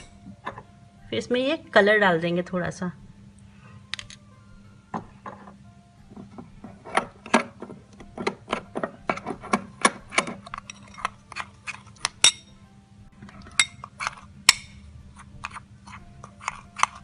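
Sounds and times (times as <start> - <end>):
spoon clinking against glass bowl: 10.5 - 12.6, 13.5 - 14.8.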